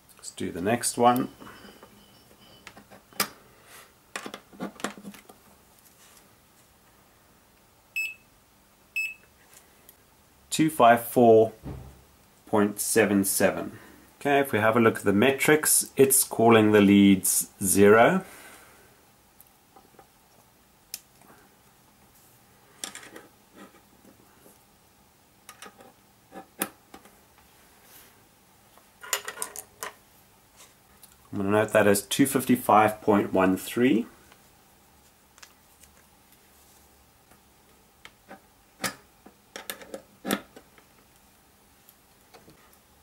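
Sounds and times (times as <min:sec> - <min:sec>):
multimeter beep: 0:01.1 - 0:03.2, 0:08.0 - 0:08.3, 0:09.0 - 0:09.3.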